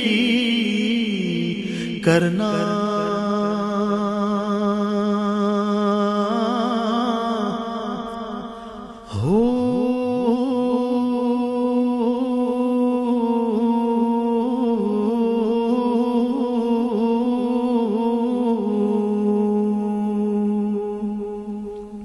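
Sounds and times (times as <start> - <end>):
hummed vocal drone: 0.0 - 22.0.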